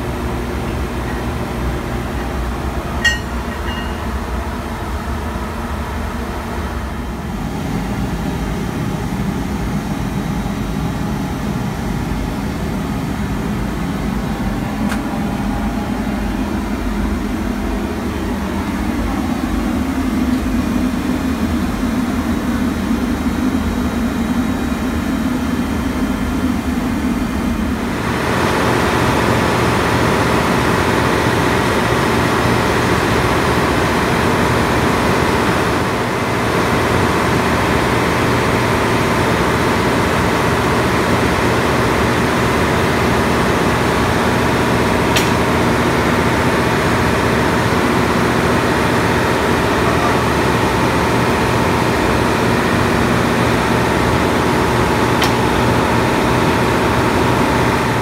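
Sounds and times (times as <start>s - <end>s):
engine-room machinery running: 0.0s - 58.0s
sharp click: 45.1s - 45.5s, 55.2s - 55.6s.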